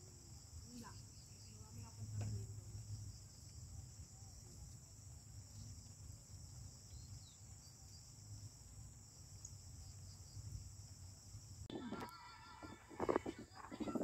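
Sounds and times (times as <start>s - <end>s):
insect chorus: 0.0s - 14.0s.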